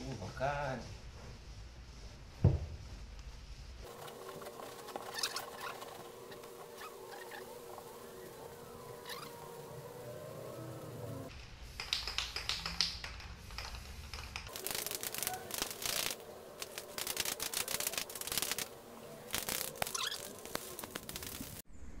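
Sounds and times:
aerosol can rattling: 11.8s - 18.7s
aerosol spray hissing: 13.4s - 21.6s.

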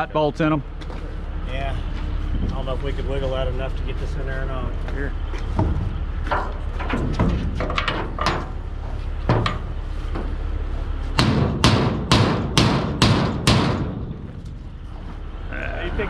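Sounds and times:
low engine rumble: 0.0s - 16.0s
hammer striking metal: 11.2s - 14.1s.

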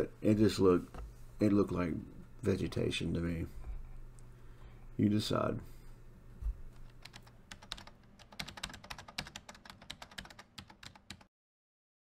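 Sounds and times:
keyboard typing: 6.7s - 11.3s.

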